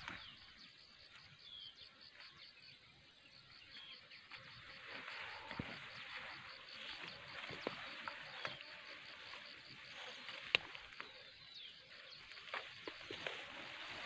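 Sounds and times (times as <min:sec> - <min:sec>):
twigs snapping: 0:10.4 - 0:11.1
plants rustling and swishing: 0:12.1 - 0:14.0.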